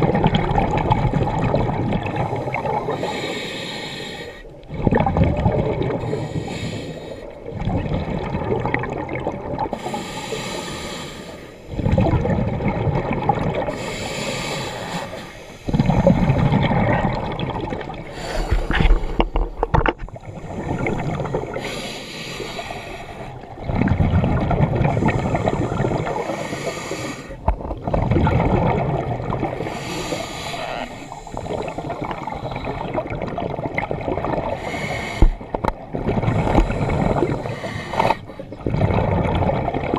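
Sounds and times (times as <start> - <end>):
bubbles rushing on exhale: 0.0 - 3.2, 4.6 - 6.2, 7.4 - 9.9, 11.7 - 14.0, 15.6 - 21.8, 22.6 - 39.9
regulator hiss on inhale: 3.0 - 4.5, 6.0 - 7.4, 9.8 - 11.7, 13.7 - 15.7, 18.1 - 19.1, 20.9 - 23.4, 25.1 - 27.4, 29.7 - 32.7, 34.6 - 35.4, 36.4 - 38.4.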